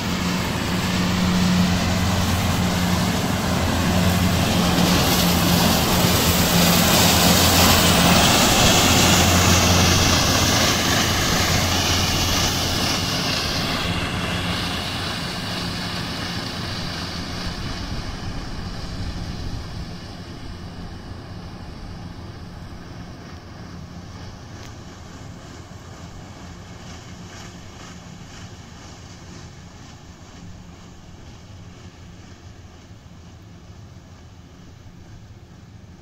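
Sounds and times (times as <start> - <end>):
spinning mowers whirring: 0.0 - 32.6
tractor engine drone: 0.0 - 36.0.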